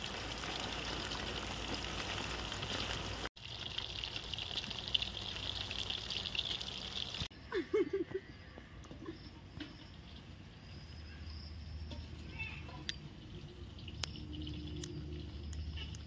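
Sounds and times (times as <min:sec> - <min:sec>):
chicken deep-frying in oil: 0:00.0 - 0:07.3, 0:11.8 - 0:16.0.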